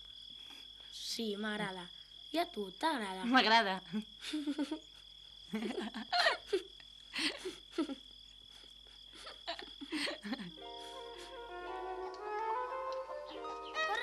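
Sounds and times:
crickets trilling: 0.0s - 14.0s
woman and boy giggling: 3.9s - 8.1s, 9.0s - 11.4s.

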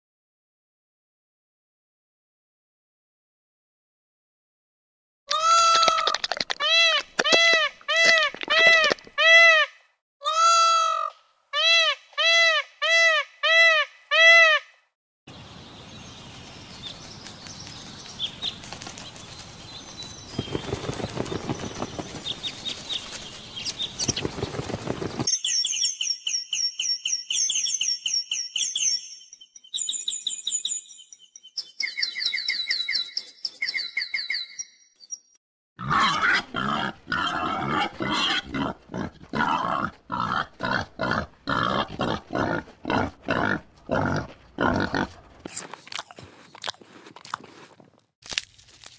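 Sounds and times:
high rapid bird chirps: 19.6s - 35.4s.

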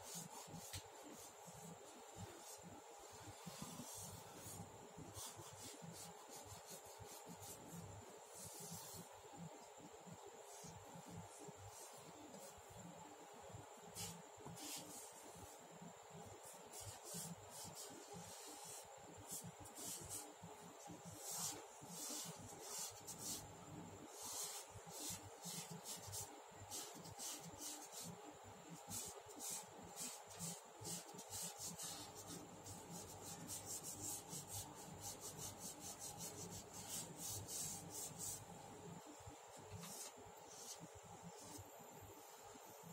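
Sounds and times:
charcoal rubbing on paper: 0.0s - 9.1s, 14.0s - 15.6s, 16.4s - 20.3s, 20.9s - 23.5s, 24.1s - 28.2s, 28.8s - 38.5s.

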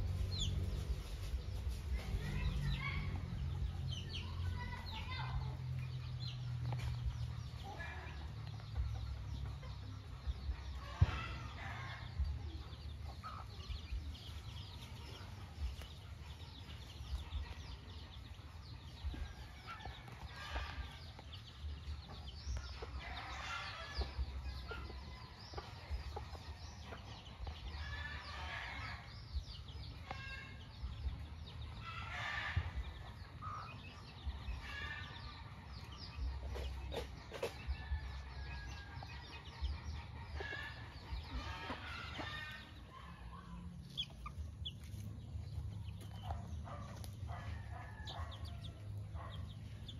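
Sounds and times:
chicks peeping: 0.0s - 49.9s
hen clucking: 31.6s - 49.9s.

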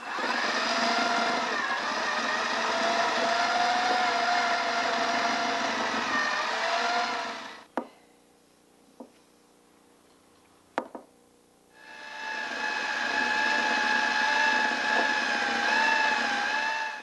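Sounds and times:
electric mixer motor whining: 0.0s - 7.7s, 11.8s - 17.0s
knock: 10.8s - 11.1s.

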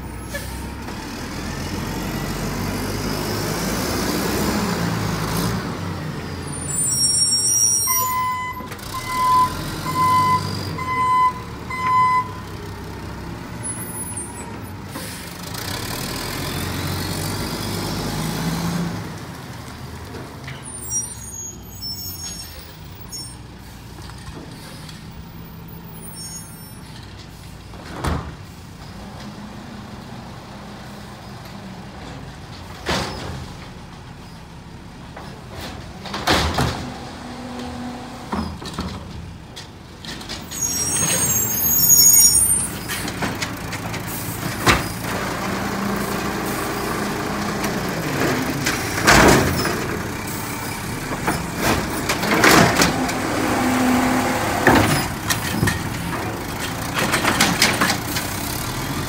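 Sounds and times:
high squeal: 6.5s - 9.6s, 20.6s - 23.4s, 25.9s - 26.9s, 40.5s - 43.0s.

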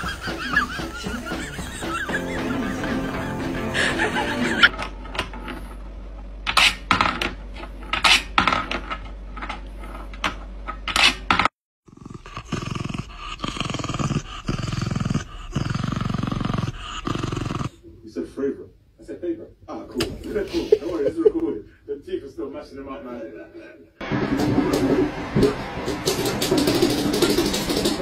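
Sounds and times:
dog growling: 11.8s - 17.8s.

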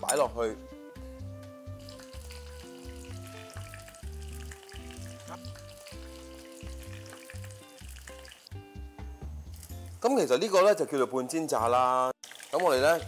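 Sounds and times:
background music: 0.0s - 13.0s
hot oil sizzling: 1.6s - 10.1s, 12.2s - 13.0s.

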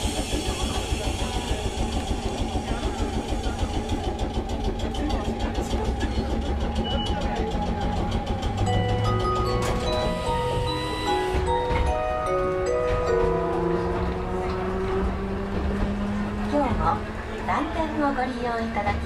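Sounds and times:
vehicle idling: 0.0s - 19.0s.

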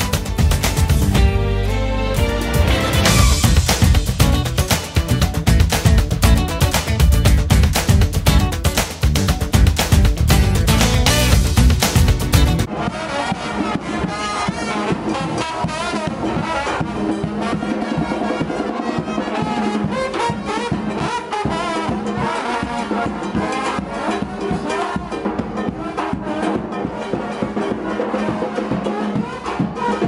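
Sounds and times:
trombones: 0.0s - 5.4s, 10.6s - 30.0s
bass drum: 0.0s - 17.7s
snare drums: 0.0s - 30.0s.

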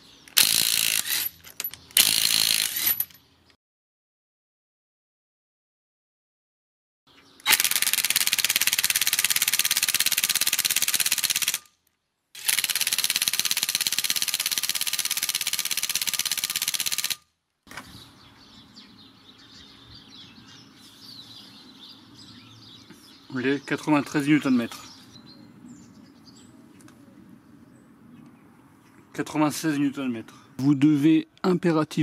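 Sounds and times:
birds chirping faintly: 17.7s - 32.0s.

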